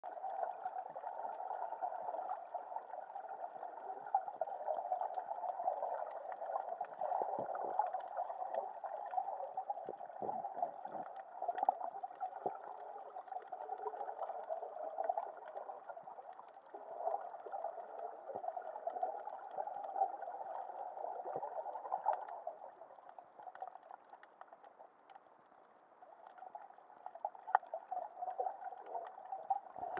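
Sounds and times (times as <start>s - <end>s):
muffled underwater rush: 0.0s - 29.9s.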